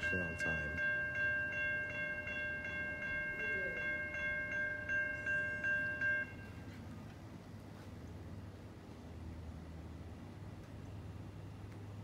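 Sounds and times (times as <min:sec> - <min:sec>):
crossing warning bell ringing: 0:00.0 - 0:06.8.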